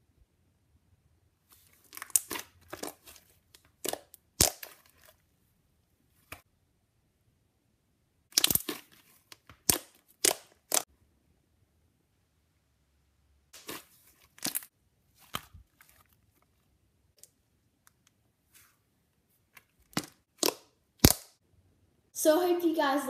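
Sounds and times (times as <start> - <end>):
slime wet pops and clicks: 8.4 - 8.8, 20.0 - 21.3.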